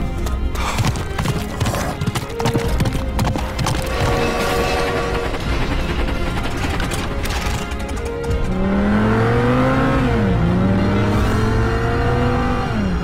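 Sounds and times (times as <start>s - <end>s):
car engine accelerating hard: 8.5s - 13.0s.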